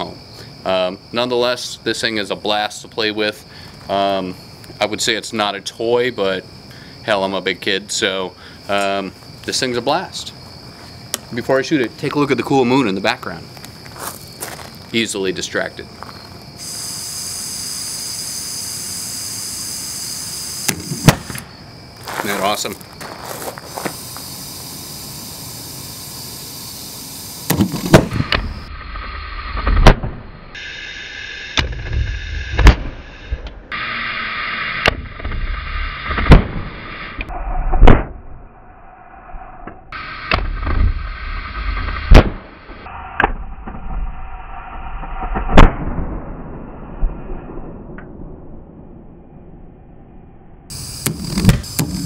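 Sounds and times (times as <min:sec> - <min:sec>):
torch gas hissing: 0:16.6 - 0:21.4, 0:23.2 - 0:28.7, 0:30.6 - 0:34.9, 0:50.7 - 0:52.0
gas gun booms: 0:20.7 - 0:21.5, 0:27.5 - 0:28.5, 0:36.1 - 0:36.7, 0:42.1 - 0:42.4.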